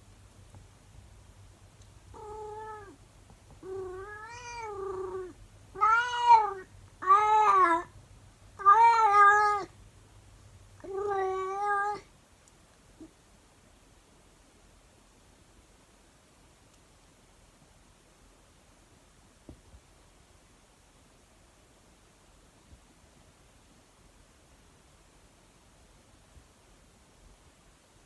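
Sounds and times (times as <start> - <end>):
cat meowing: 2.2 - 3.0, 3.6 - 7.9, 8.6 - 9.7, 10.8 - 12.1.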